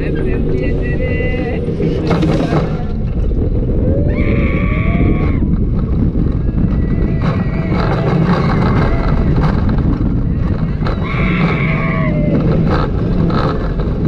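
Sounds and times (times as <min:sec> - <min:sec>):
wind rushing over microphone: 0:00.0 - 0:14.0
people yelling: 0:10.3 - 0:12.7.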